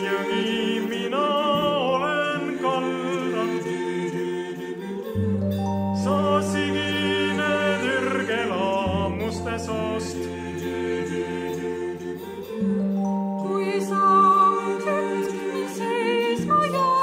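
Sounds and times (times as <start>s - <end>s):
choir singing in harmony: 0.0s - 17.0s.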